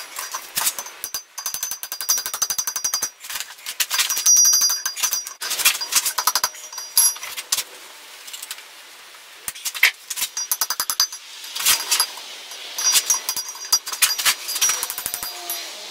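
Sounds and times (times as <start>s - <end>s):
light metal clinks: 0.0s - 3.2s, 3.9s - 7.4s, 10.3s - 15.9s
hammer striking steel on anvil: 10.4s - 15.8s.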